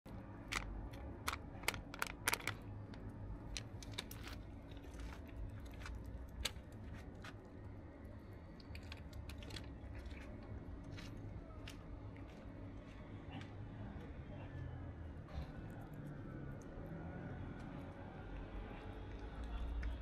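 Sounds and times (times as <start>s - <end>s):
low steady rumble: 0.1s - 20.0s
cat chewing wet food: 17.6s - 20.0s.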